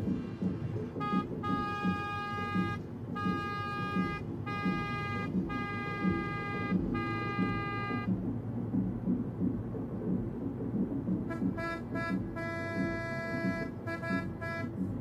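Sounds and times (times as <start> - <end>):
low rumble: 0.0 - 15.0
car horn honking: 1.0 - 8.1, 11.3 - 15.0.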